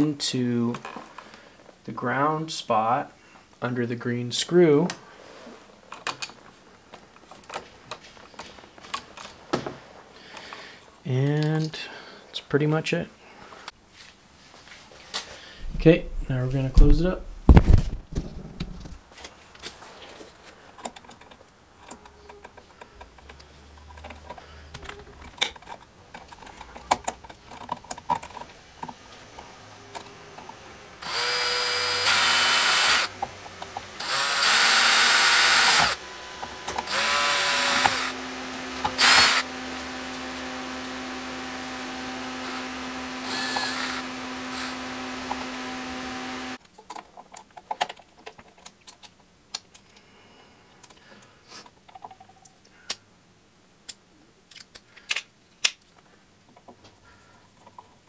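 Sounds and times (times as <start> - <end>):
light clicks and handling noises: 19.2 - 30.6, 46.6 - 53.1
cordless drill spinning: 29.5 - 46.6.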